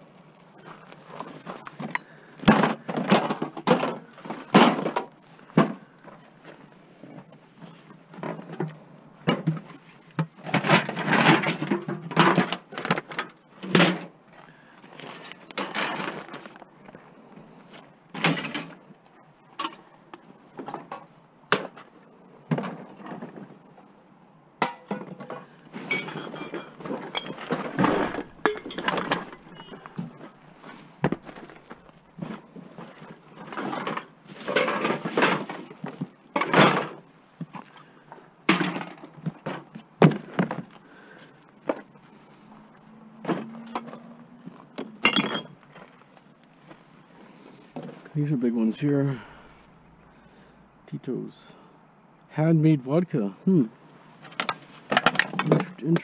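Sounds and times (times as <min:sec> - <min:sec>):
scrap metal clattering and rattling: 0:09.3 - 0:14.1, 0:15.0 - 0:16.6, 0:24.7 - 0:37.0.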